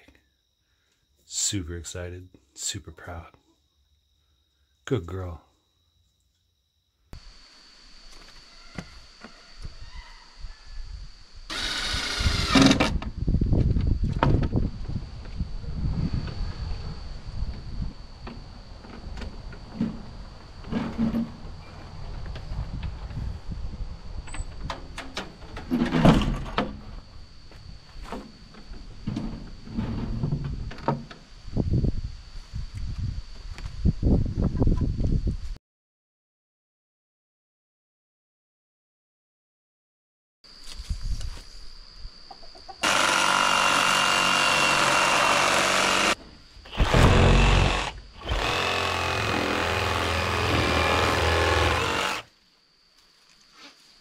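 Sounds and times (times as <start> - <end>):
faint high whine: 0.0 - 13.6
chickens clucking and squawking: 42.3 - 42.8.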